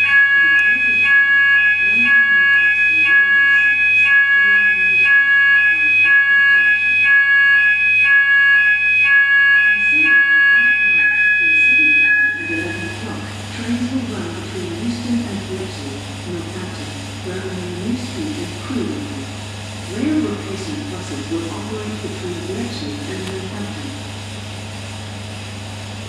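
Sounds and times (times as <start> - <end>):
two-tone electronic alarm: 0.0 - 13.9.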